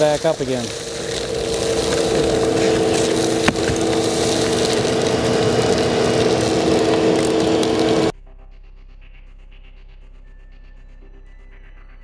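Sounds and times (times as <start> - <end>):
shop vacuum running: 0.0 - 8.1.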